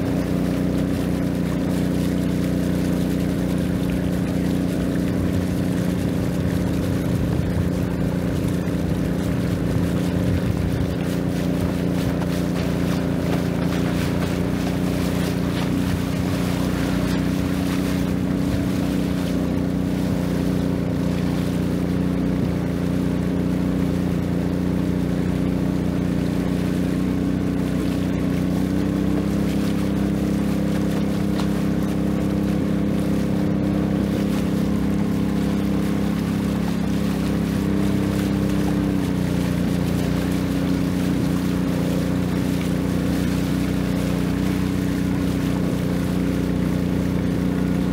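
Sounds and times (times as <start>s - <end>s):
boat engine running: 0.0s - 47.9s.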